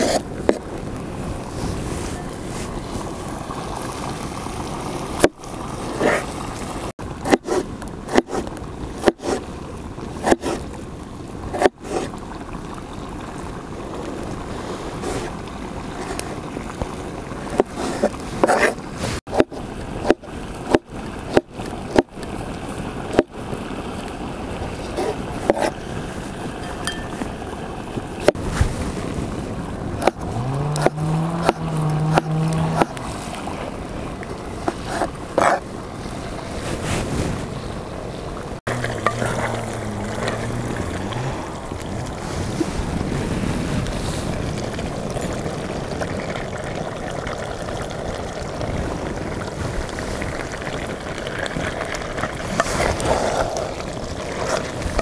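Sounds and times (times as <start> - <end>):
wind noise: 0.0 - 55.0
cleaver chopping on wooden board: 30.8 - 33.0
low humming tone: 38.7 - 42.6.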